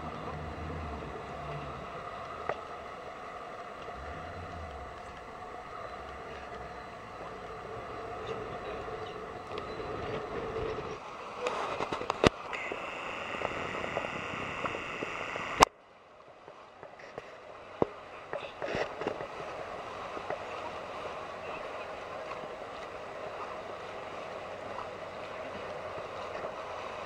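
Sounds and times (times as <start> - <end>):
water sloshing at hull: 0.0 - 13.5, 16.5 - 27.0
boat engine running: 0.0 - 15.6
faint ticks: 3.8 - 7.6, 11.4 - 15.7.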